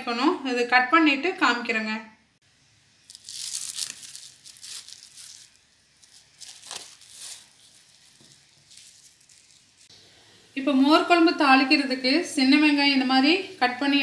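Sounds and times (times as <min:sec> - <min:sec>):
cling film crackling: 0:03.0 - 0:09.9.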